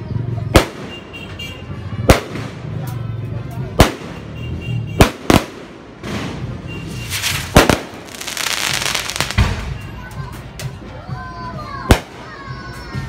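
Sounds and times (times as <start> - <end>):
firework shells bursting: 5.0 - 9.7
firework crackling: 5.0 - 9.8.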